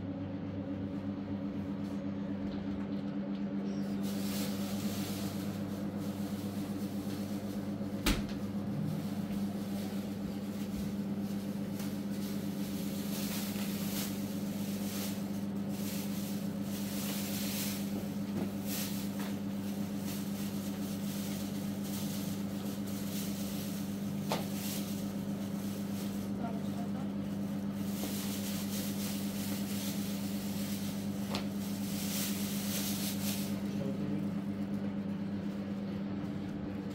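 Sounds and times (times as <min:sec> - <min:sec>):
low electrical hum: 0:00.0 - 0:36.9
refrigerator door shutting: 0:07.9 - 0:08.6.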